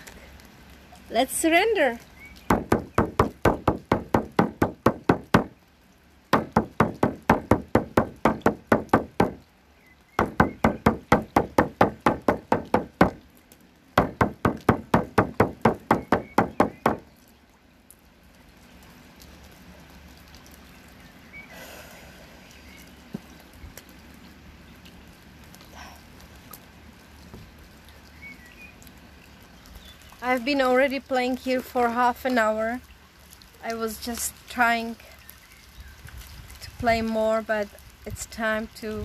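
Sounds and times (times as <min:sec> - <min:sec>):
frame drum beats: 0:14.0 - 0:17.0.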